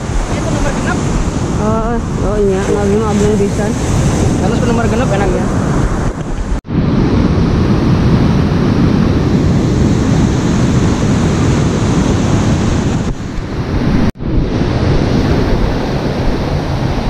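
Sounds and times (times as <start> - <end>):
ocean surf breaking: 0.0 - 17.0
wind buffeting microphone: 0.0 - 17.0.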